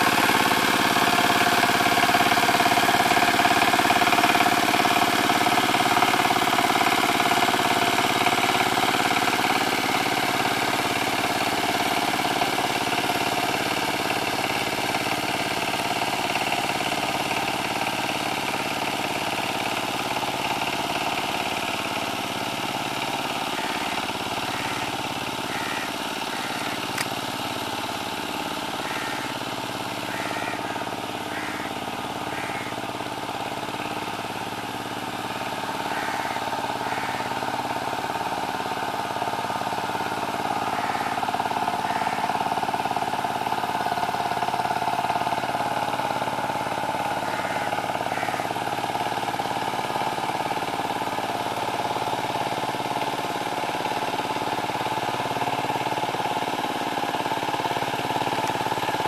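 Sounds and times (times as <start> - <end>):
diesel tiller engine running: 0.0 - 59.0.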